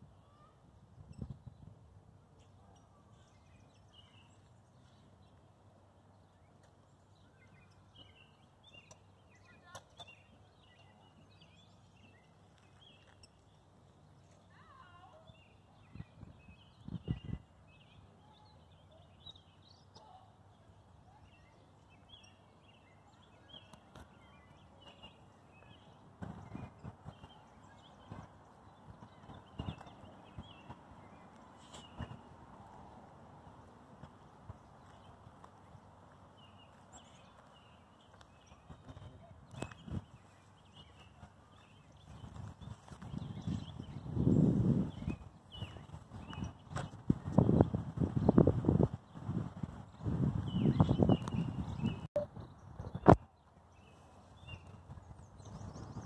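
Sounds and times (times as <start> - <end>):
small birds chirping: 0.1 - 56.0
footsteps on paved path: 6.5 - 16.4, 22.6 - 48.7.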